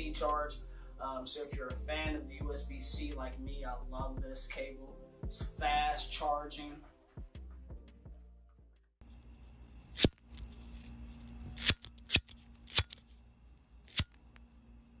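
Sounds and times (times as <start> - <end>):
low electric hum: 9.0 - 15.0.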